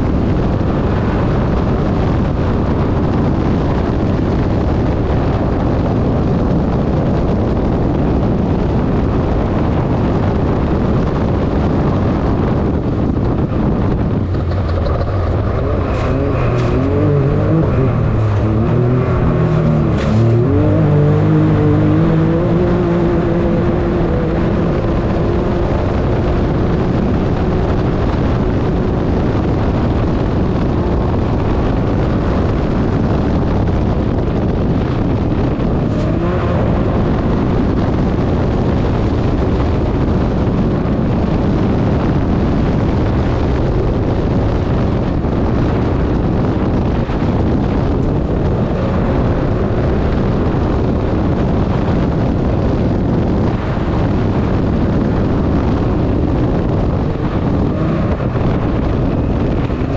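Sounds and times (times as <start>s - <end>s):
wind and road noise: 0.0s - 59.9s
engine revving: 12.6s - 33.8s, 34.4s - 40.0s, 45.7s - 59.9s.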